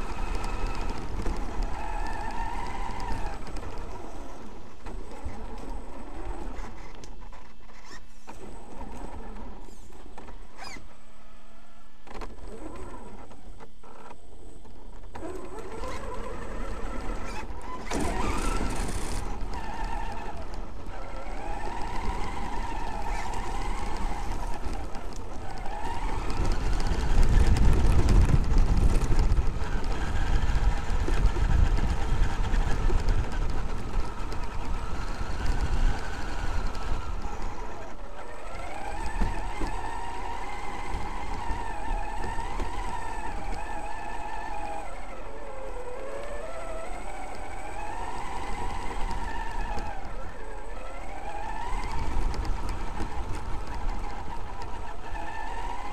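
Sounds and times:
electric motor whine: 0.0 - 55.9
tyre noise on gravel: 15.0 - 55.9.

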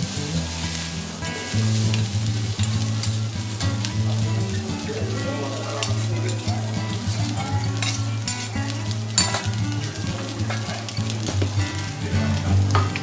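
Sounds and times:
rice sizzling on griddle: 0.0 - 13.0
metal spatulas scraping griddle: 7.7 - 8.5, 9.1 - 9.6.

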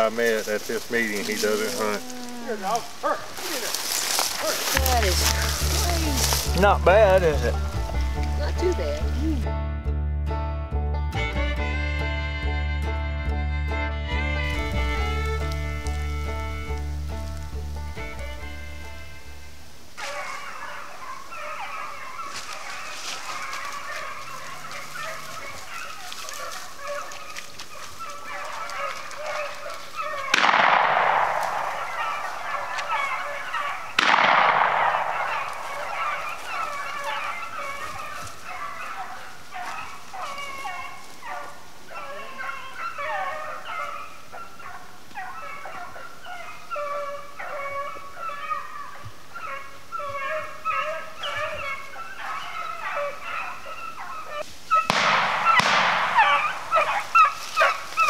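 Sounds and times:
hounds baying and yelping: 0.0 - 9.2, 14.3 - 58.0
echoing shotgun shots: 30.2 - 37.0, 54.7 - 57.9.

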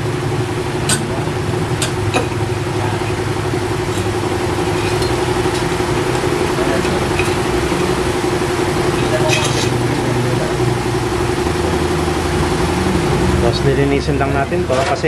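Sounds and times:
motor drone: 0.0 - 14.7.

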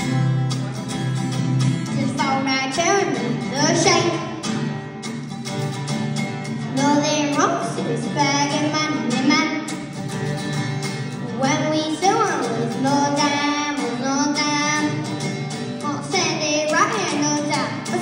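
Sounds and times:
acoustic guitar strumming: 0.0 - 18.0
boy singing into a microphone: 1.9 - 4.4, 6.6 - 9.8, 11.3 - 18.0.

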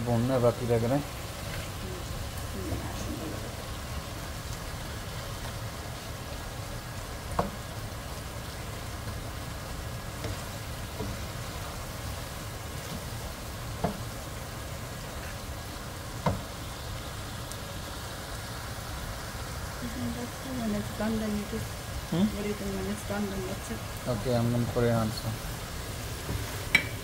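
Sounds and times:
vegetables sizzling in oil: 0.0 - 27.0
spatula knocking against pan: 26.3 - 27.0.

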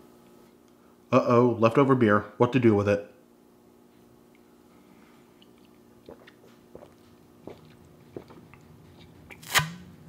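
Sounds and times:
man swallowing: 5.4 - 9.1.

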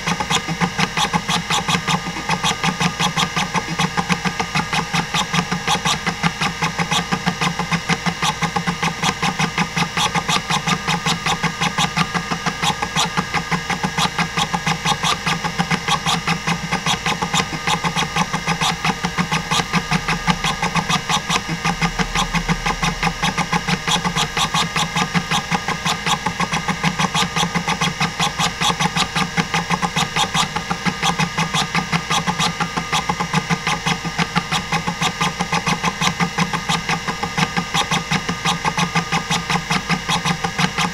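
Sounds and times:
spinning drive hum: 0.0 - 31.0.

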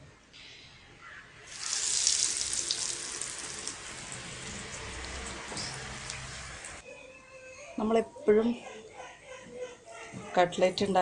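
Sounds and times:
cutlet frying in oil with crackling: 1.5 - 6.8.

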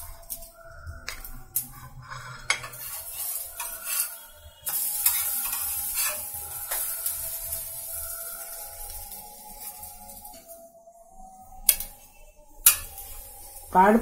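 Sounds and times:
metal spatula scraping griddle: 1.0 - 10.4, 12.6 - 14.0
bread sizzling on griddle: 1.0 - 10.6, 12.6 - 14.0.

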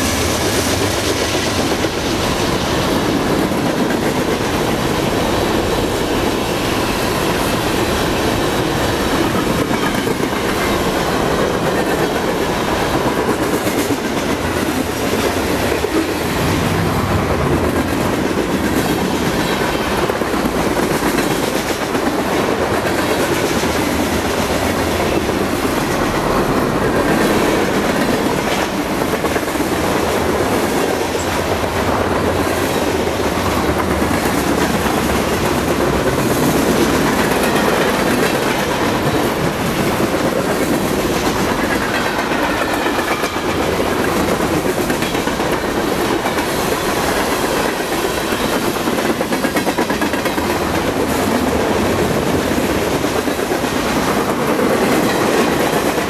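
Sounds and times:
clickety-clack over rail joints: 0.0 - 56.0
freight train cars rolling past: 0.0 - 56.0.

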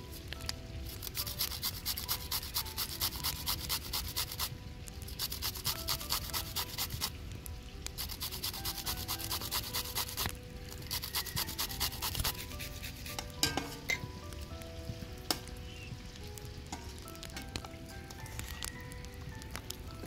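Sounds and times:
grating on metal grater: 0.9 - 4.5, 5.1 - 7.1, 8.0 - 13.4.

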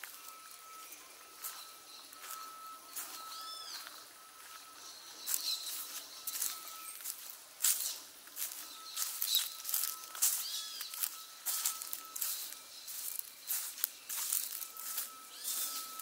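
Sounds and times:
footsteps scuffing on path: 0.0 - 16.0
bird call: 8.7 - 16.0.

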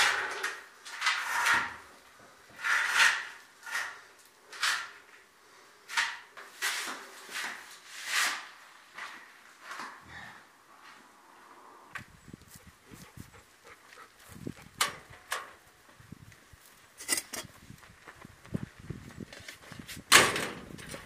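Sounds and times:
hand tool scraping cement: 0.0 - 1.9, 2.5 - 5.1, 5.9 - 9.2.

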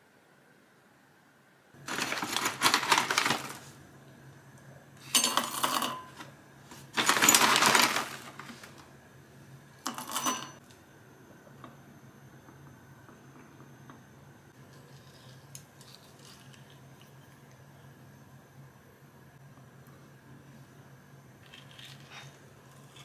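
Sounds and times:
small hard pieces rattling: 1.8 - 3.6, 7.0 - 8.6.

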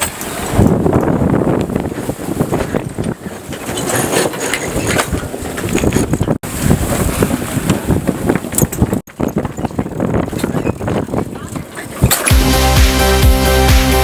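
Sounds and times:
wind buffeting microphone: 0.0 - 12.3.

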